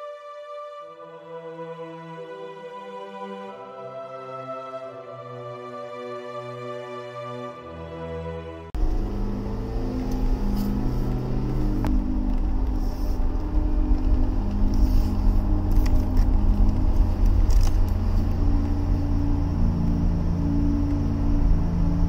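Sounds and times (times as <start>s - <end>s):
car road and wind noise: 8.8s - 22.0s.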